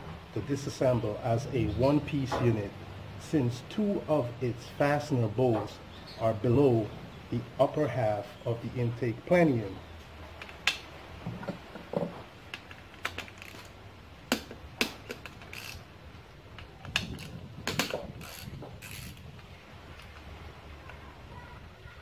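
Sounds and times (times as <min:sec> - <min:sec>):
ratchet wrench clicking: 0:14.3 - 0:15.8, 0:17.8 - 0:19.2.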